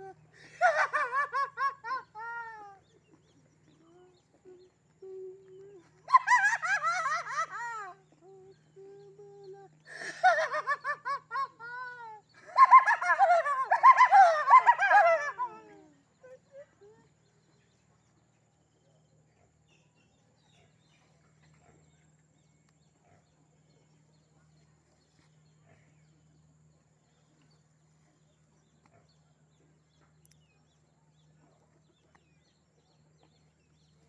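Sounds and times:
faint low hum: 0.0s - 34.0s.

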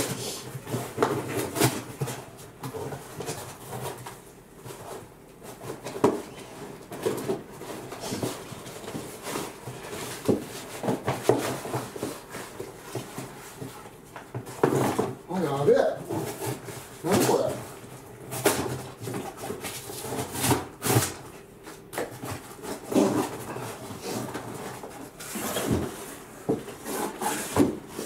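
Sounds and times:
cardboard and packing rustling: 0.0s - 28.0s.

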